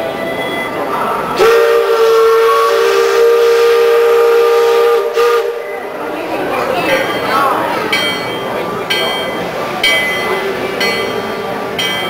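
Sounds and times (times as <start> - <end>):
steam whistle blowing: 1.4 - 5.9.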